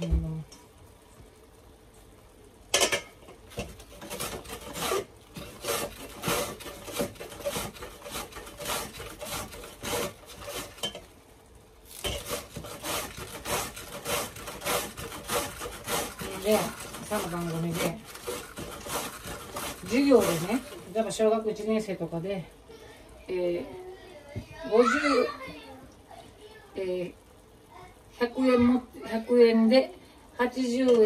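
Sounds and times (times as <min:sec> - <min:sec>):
cabbage rasping on hand slicer: 0:03.6 - 0:10.9, 0:11.9 - 0:21.0.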